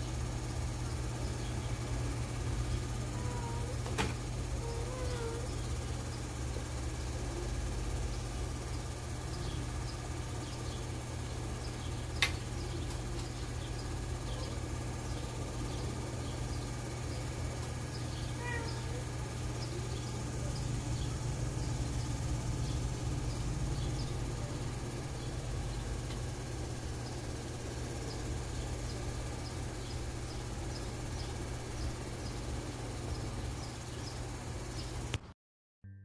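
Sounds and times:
crickets chirping faintly: 0:00.0 - 0:35.2
steady low hum: 0:00.0 - 0:35.2
sharp click: 0:12.2 - 0:12.4.

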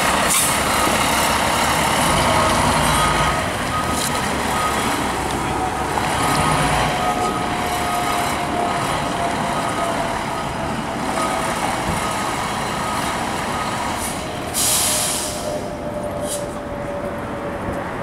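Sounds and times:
reversing beeper: 0:01.8 - 0:05.0, 0:06.2 - 0:17.0
air brake hiss: 0:14.0 - 0:16.6.

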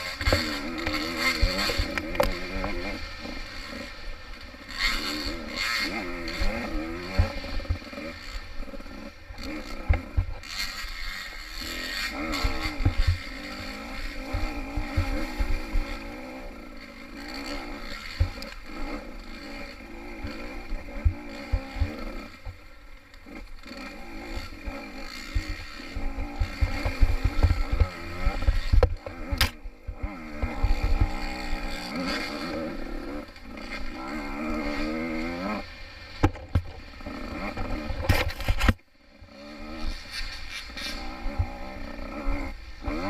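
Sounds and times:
dirt bike engine revving: 0:00.0 - 0:43.0
thuds and knocks from trail: 0:36.2 - 0:36.8, 0:37.6 - 0:38.8.

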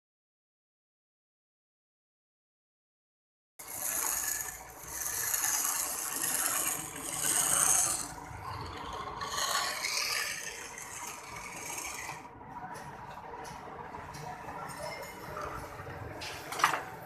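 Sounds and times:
grinder gears rattling: 0:03.6 - 0:12.3
metal rod grinding on wheel: 0:03.6 - 0:12.3.

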